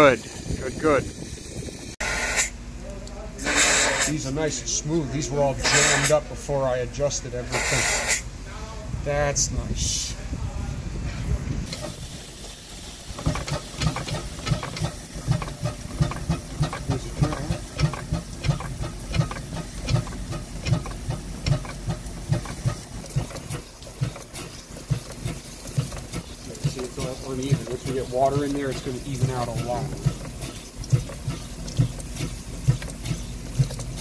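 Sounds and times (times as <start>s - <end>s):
steam hissing: 0.0s - 2.6s, 3.4s - 4.3s, 5.6s - 6.2s, 7.5s - 8.3s, 11.6s - 34.0s
steam engine beat: 11.7s - 34.0s.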